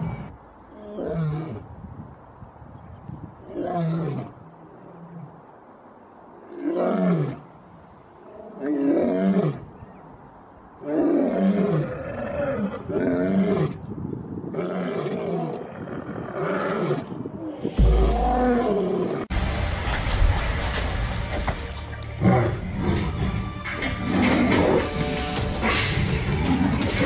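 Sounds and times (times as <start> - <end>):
lion roaring: 14.5 - 19.3
loud low rumble: 17.7 - 21.4.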